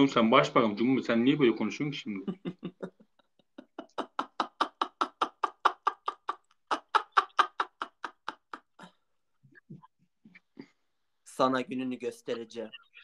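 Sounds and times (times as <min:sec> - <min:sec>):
young man laughing hard: 0:02.3 - 0:08.8.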